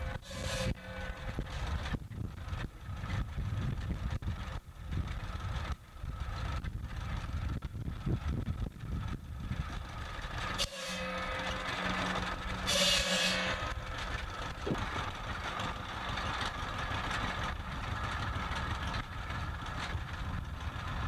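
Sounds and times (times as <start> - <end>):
tractor engine running: 0.0 - 21.0
saw blade biting into log: 12.6 - 13.6.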